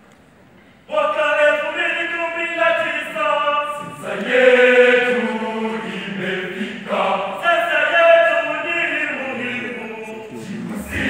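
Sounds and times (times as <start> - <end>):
boys' choir singing: 2.7 - 11.0.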